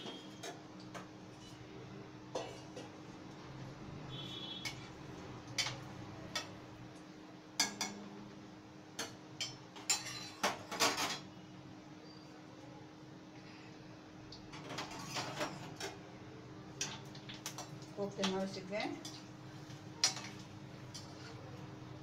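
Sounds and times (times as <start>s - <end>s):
steel utensils clinking on metal: 9.0s - 11.2s.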